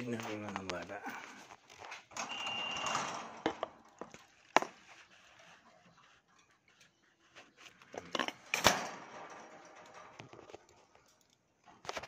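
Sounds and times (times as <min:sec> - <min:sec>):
high steady whistle: 0:02.3 - 0:03.0.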